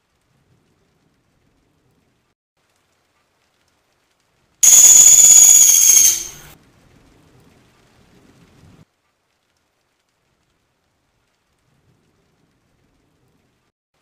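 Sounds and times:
woodpecker shrill trill: 0:04.6 - 0:06.5.

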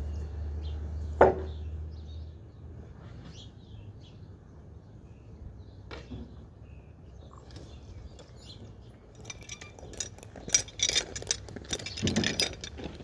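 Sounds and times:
metallic clicks and clinks: 0:08.1 - 0:13.0.

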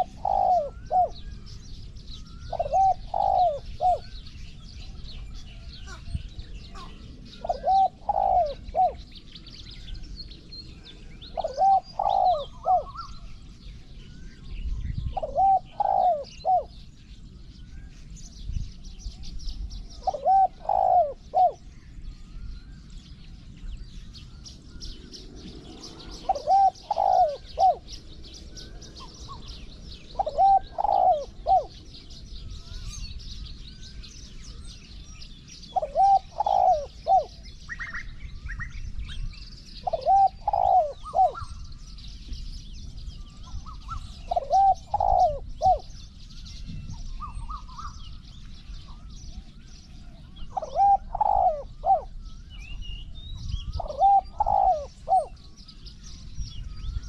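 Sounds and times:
dove cooing: 0:00.0 - 0:01.5, 0:02.2 - 0:04.3, 0:05.8 - 0:10.0, 0:11.0 - 0:13.3, 0:15.1 - 0:16.8, 0:19.9 - 0:21.7, 0:24.8 - 0:33.0, 0:35.7 - 0:38.1, 0:39.8 - 0:41.6, 0:43.5 - 0:46.0, 0:50.2 - 0:52.2, 0:53.5 - 0:55.4
small birds chirping: 0:00.0 - 0:57.0.

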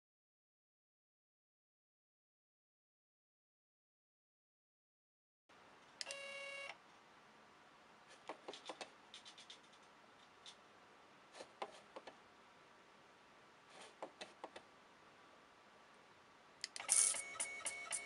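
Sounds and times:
computer mouse clicks: 0:08.2 - 0:10.6
keyboard clicks: 0:08.3 - 0:10.6.

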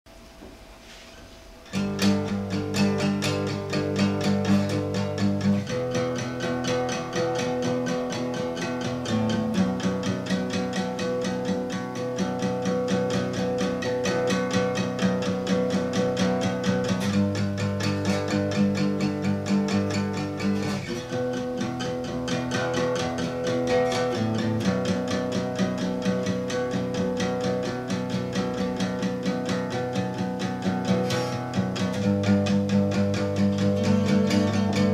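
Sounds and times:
acoustic guitar strumming: 0:00.2 - 0:34.9.

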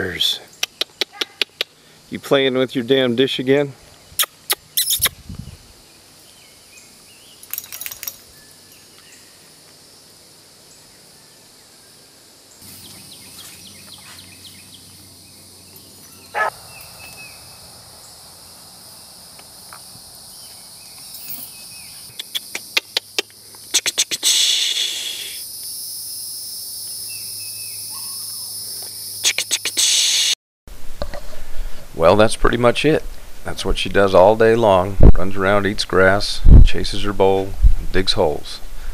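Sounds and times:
dog chain rattling: 0:07.4 - 0:08.3, 0:21.0 - 0:21.6
high insect buzzing: 0:12.4 - 0:30.4.

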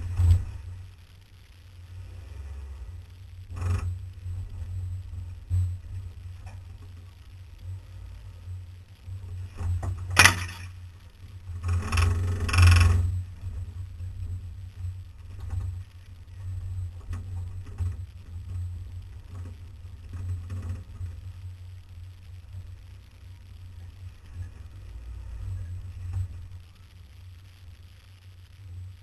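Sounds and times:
off-road vehicle engine droning: 0:00.0 - 0:29.0
knocks and rattles over rocks: 0:09.5 - 0:10.8
sharp crack: 0:09.6 - 0:13.0.

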